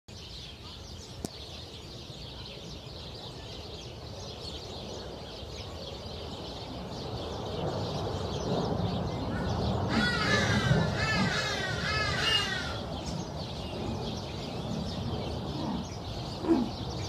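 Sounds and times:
birds chirping: 0:00.1 - 0:17.0
low rumble: 0:08.3 - 0:17.0.

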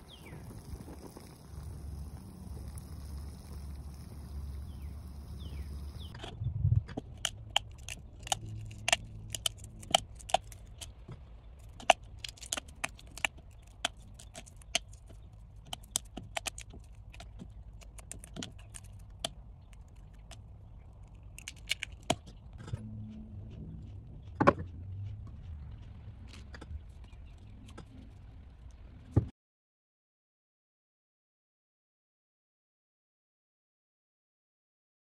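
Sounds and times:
eggshell cracking: 0:00.0 - 0:06.2, 0:07.0 - 0:22.7.

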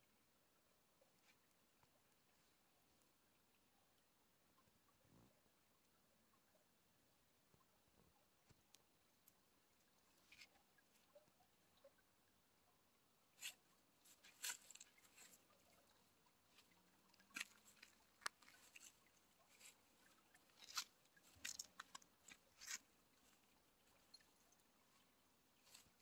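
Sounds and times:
dry grass crackling underfoot: 0:13.4 - 0:15.9, 0:16.5 - 0:26.0.

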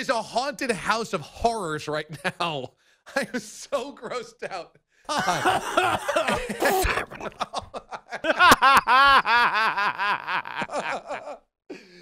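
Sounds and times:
men laughing hard: 0:05.1 - 0:11.5.

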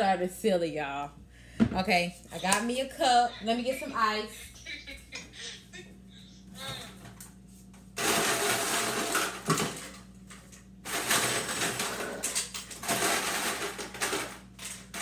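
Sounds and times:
ice dispenser motor: 0:08.0 - 0:15.0.

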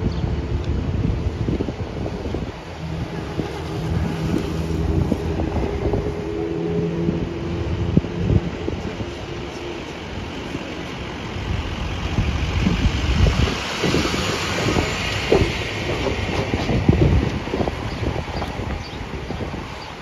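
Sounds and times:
bus engine rumble: 0:00.0 - 0:20.0
city street traffic: 0:00.0 - 0:20.0
wind thumps on microphone: 0:11.5 - 0:19.8.

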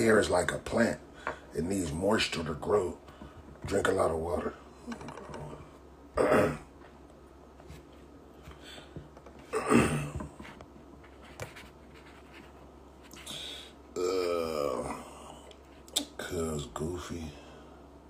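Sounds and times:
man breathing heavily: 0:08.4 - 0:09.1, 0:13.2 - 0:13.8.

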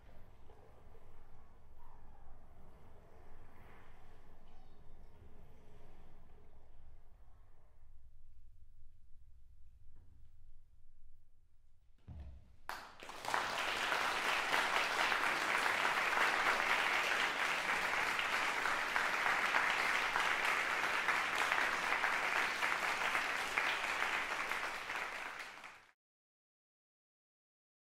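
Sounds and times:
audience applauding: 0:12.7 - 0:26.0.

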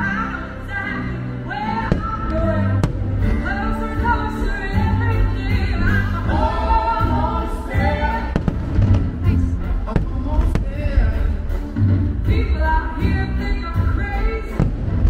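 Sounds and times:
pop song with band: 0:00.0 - 0:14.8
firework bangs: 0:08.3 - 0:09.2.

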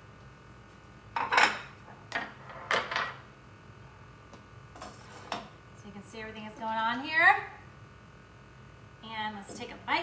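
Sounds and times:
plates clinking on stone countertop: 0:01.2 - 0:03.2.

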